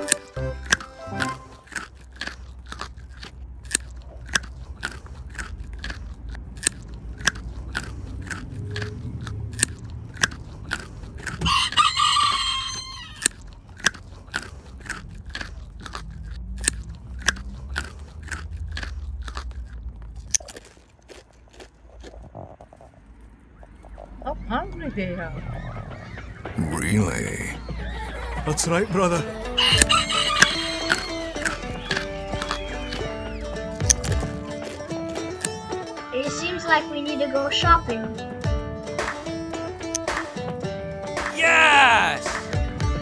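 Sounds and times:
rabbits crunching food pellets: 0.0 - 23.3, 29.8 - 33.1, 33.8 - 35.6.

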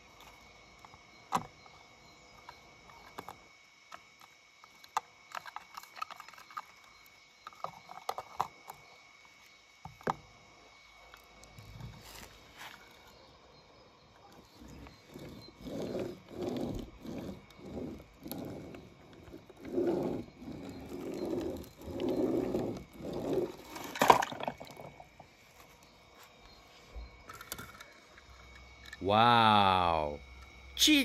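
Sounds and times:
toy wheels rubbing on wet paper: 14.6 - 24.0.

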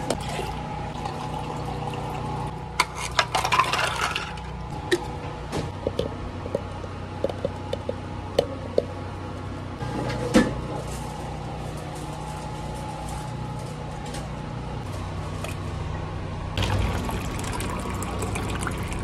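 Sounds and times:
steady background hum: 0.0 - 19.0
ice clattering into cup: 2.8 - 4.5.

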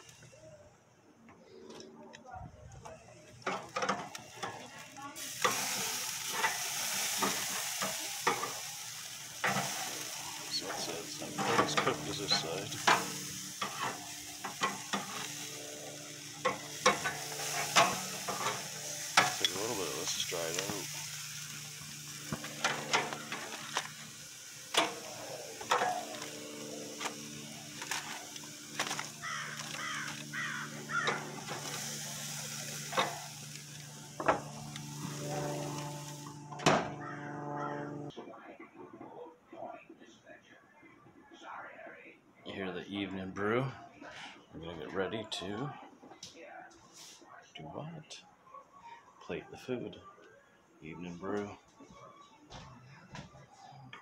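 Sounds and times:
meat sizzling on a grill: 3.4 - 36.5.

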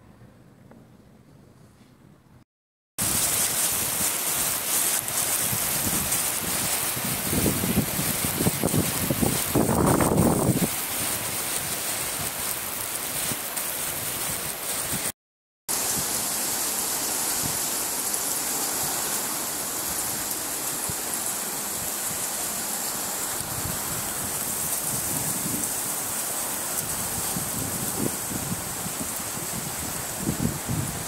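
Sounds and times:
heavy rain falling: 3.0 - 31.0.

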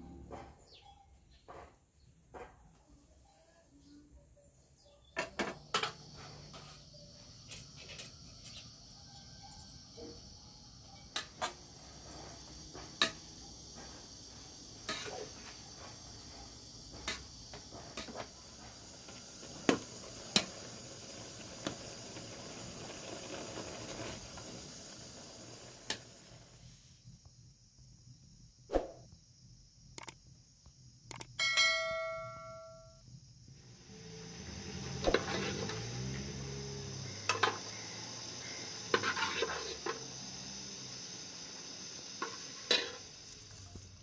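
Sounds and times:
steady high hiss: 5.6 - 28.5, 36.0 - 44.0.

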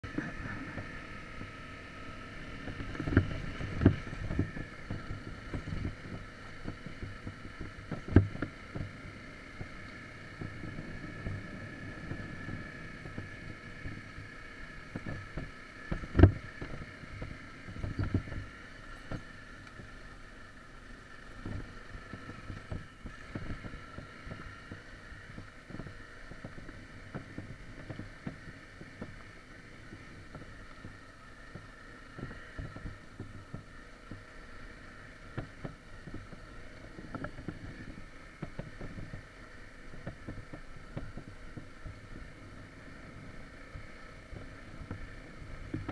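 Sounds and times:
dirt bike engine running: 0.0 - 45.9
knocks and rattles over gravel: 2.6 - 34.4
wheels knocking on stones: 35.2 - 45.9.

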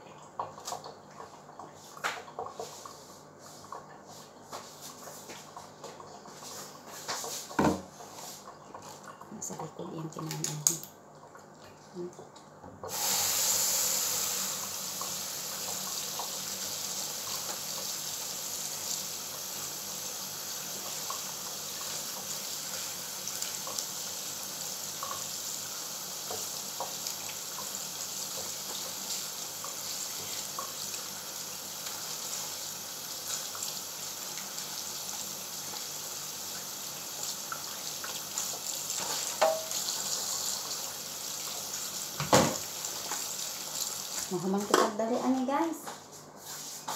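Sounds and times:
tap running into metal sink: 7.1 - 7.9, 39.0 - 39.8, 42.2 - 43.2.

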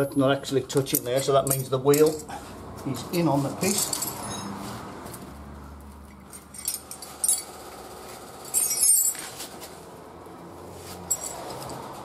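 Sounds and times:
metal spanners clinking: 0.0 - 2.4, 3.6 - 4.6, 6.1 - 9.6, 11.0 - 11.9.

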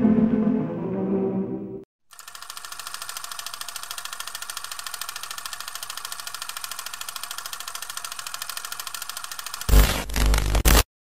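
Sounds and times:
film projector clattering: 2.1 - 9.7.

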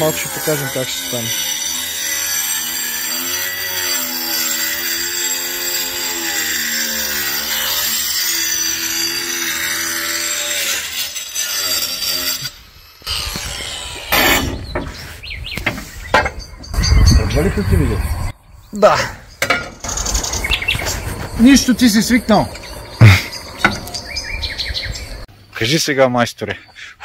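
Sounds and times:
angle grinder cutting tile: 0.0 - 15.0.

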